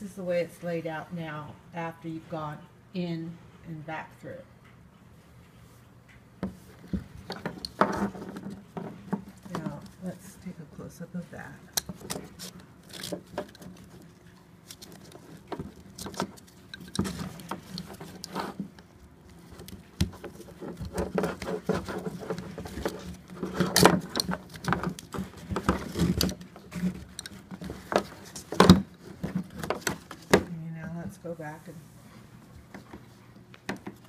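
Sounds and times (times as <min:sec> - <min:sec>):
strap rustling through buckle: 0:11.7 - 0:30.4.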